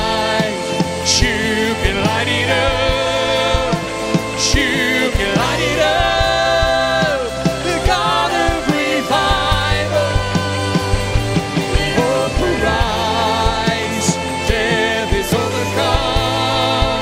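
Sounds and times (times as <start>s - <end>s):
band playing: 0.0s - 16.7s
bass: 0.0s - 17.0s
woman singing: 4.5s - 17.0s
drum beat: 11.7s - 14.4s.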